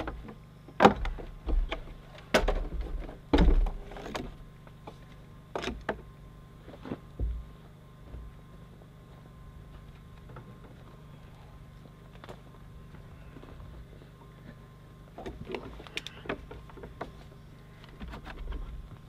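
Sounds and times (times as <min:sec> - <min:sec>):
knocks and clunks on wooden deck: 0:00.0 - 0:06.1, 0:07.1 - 0:08.4.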